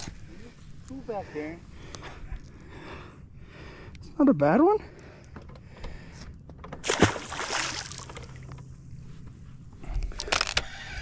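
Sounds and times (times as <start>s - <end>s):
fish slapping into water: 6.8s - 8.4s
water splashing: 6.8s - 8.4s.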